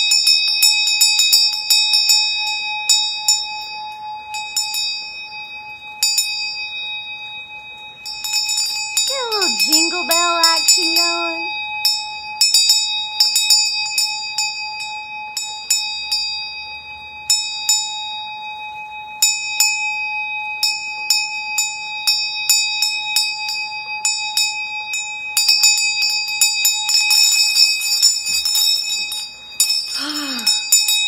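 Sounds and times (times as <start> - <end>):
hand bell ringing: 8.0 - 16.6, 21.6 - 31.0.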